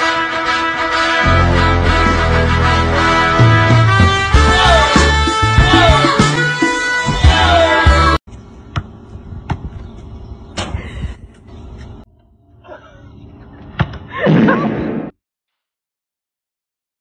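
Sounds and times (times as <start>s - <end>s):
person yelling: 4.4s - 6.3s, 7.2s - 8.2s.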